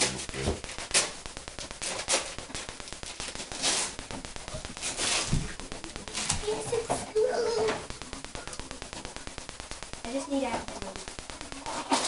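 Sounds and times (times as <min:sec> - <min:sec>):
wrapping paper crinkling and tearing: 0:00.7 - 0:04.1.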